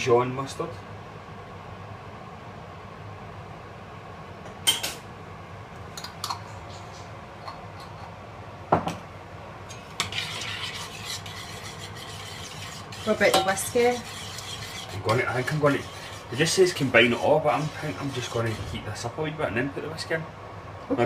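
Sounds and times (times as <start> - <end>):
spoon scraping while stirring sauce: 9.7 - 19.1
metal utensils clinking on saucepan: 12.4 - 14.0.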